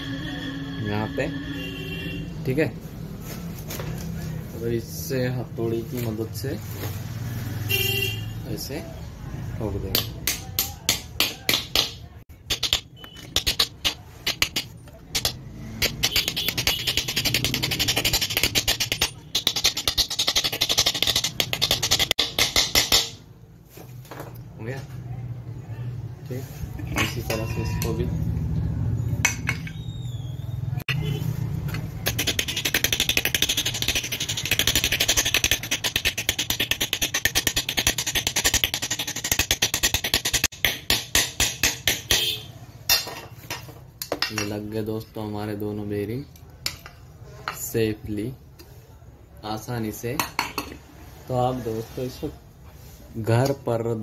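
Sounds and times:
hammer tapping metal: 9.9s - 23.2s, 31.7s - 44.5s.

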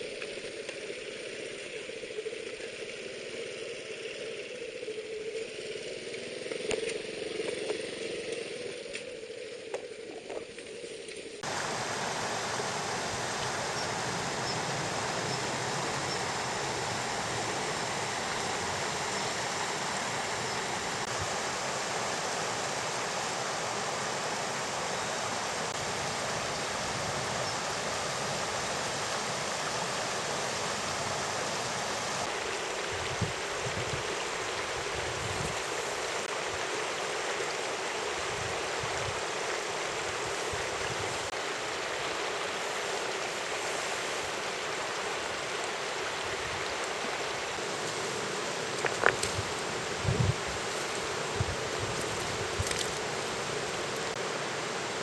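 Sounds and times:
stream rushing over stones: 11.4s - 55.0s.

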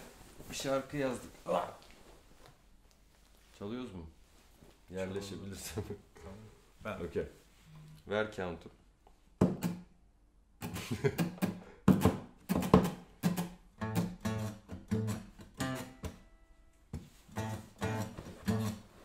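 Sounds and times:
acoustic guitars strumming: 10.8s - 16.4s, 17.1s - 18.9s.

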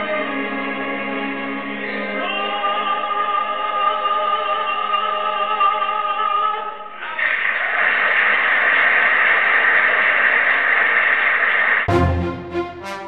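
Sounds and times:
mixed chorus singing: 0.0s - 6.4s.

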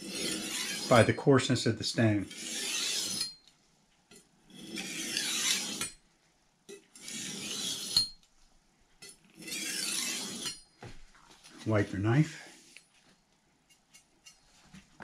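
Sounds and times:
knife hissing on sharpening stone: 2.3s - 3.4s, 4.6s - 5.9s.

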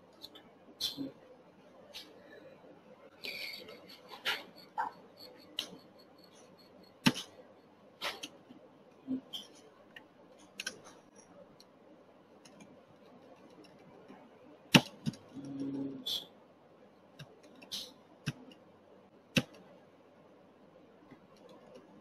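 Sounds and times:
mouse and keyboard clicks: 9.4s - 11.7s, 12.4s - 15.8s.

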